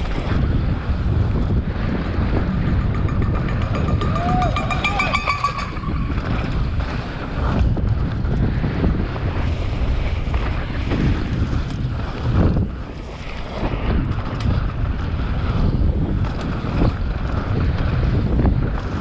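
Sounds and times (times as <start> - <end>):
bike tyre noise: 0.0 - 19.0
wind rushing over microphone: 0.0 - 19.0
short high ringing: 2.3 - 7.0.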